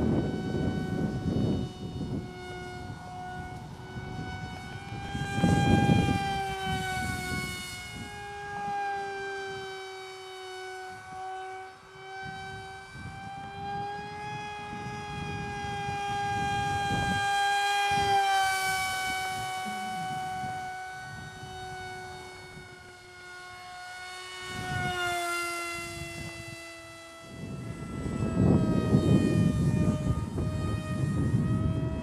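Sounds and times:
wind rumble on microphone: 0:00.0 - 0:23.8, 0:24.4 - 0:32.0
electric motor and propeller whining: 0:00.0 - 0:32.0.

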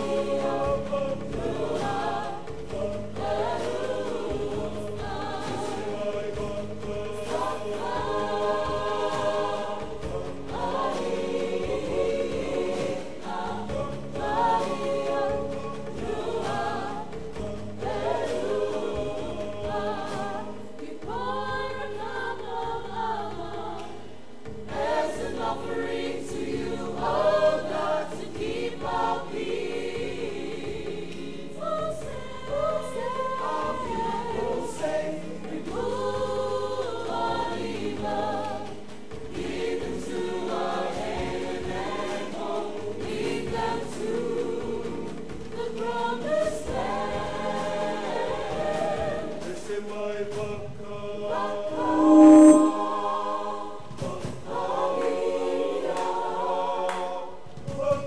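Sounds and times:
choir singing unaccompanied: 0:00.0 - 0:58.0
brief loud tone: 0:51.7 - 0:53.0.

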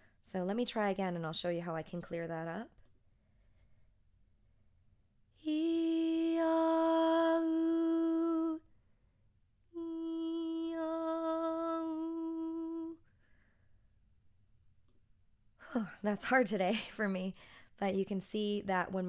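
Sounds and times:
woman singing sustained notes: 0:05.4 - 0:08.7, 0:09.8 - 0:13.0.

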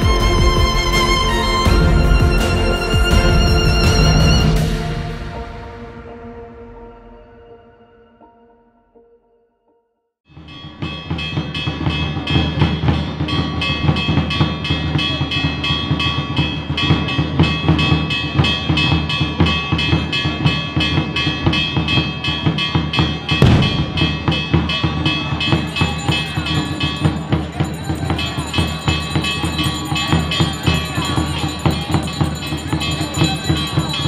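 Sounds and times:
quick steady drum beat: 0:00.0 - 0:04.7, 0:23.4 - 0:25.0
band holding long chords: 0:00.0 - 0:08.2, 0:23.4 - 0:25.0.

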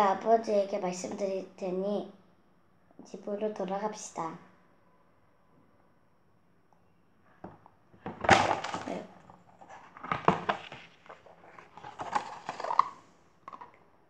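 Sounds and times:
paper page rustling: 0:08.2 - 0:13.7.

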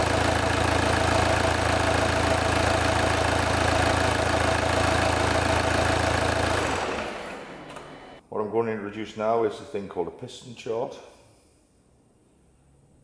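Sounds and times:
diesel engine idling: 0:00.0 - 0:08.2.

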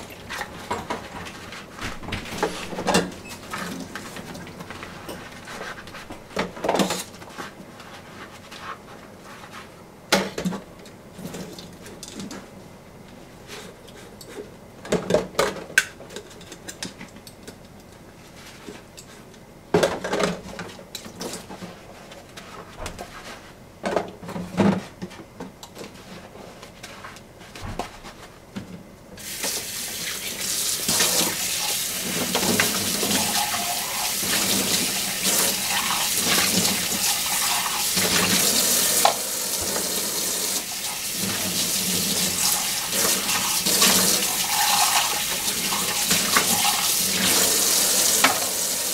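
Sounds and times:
tap water running: 0:29.2 - 0:48.9.

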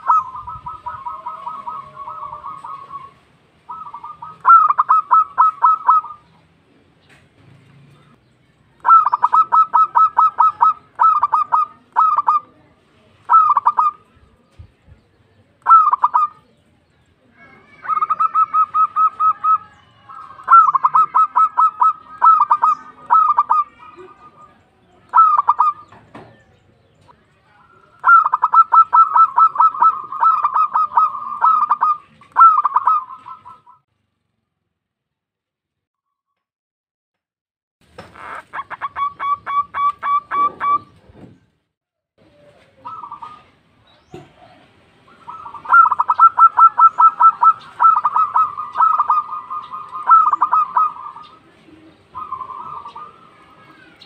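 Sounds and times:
dove cooing: 0:00.0 - 0:06.4, 0:08.8 - 0:14.1, 0:15.6 - 0:16.6, 0:17.5 - 0:26.0, 0:27.7 - 0:33.8, 0:38.2 - 0:41.0, 0:42.3 - 0:54.0.

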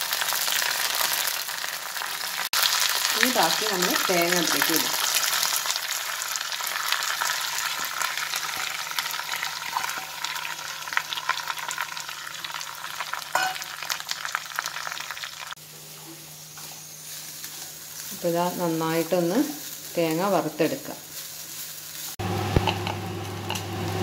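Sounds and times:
coconut frying sizzle: 0:00.0 - 0:24.0
spatula stirring in wok: 0:15.8 - 0:20.0, 0:21.0 - 0:23.7.

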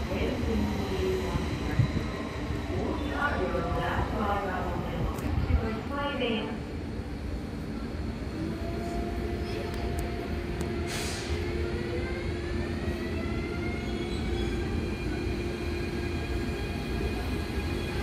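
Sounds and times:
train electric whine: 0:00.0 - 0:18.0
train low rumble: 0:00.0 - 0:18.0
short hiss: 0:10.9 - 0:11.4.

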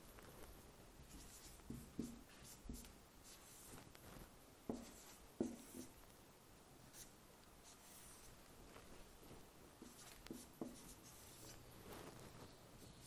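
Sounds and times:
marker writing on whiteboard: 0:01.0 - 0:04.0, 0:04.7 - 0:06.0, 0:06.8 - 0:08.4, 0:09.8 - 0:11.6.

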